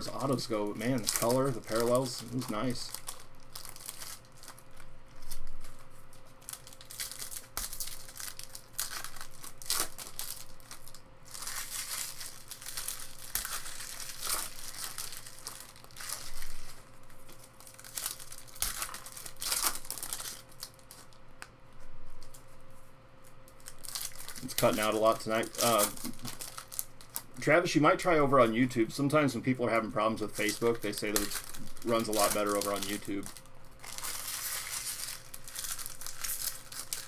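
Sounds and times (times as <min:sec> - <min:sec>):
foil packs tearing and crinkling: 0:00.0 - 0:21.2, 0:23.4 - 0:37.0
faint steady hum: 0:00.0 - 0:37.0.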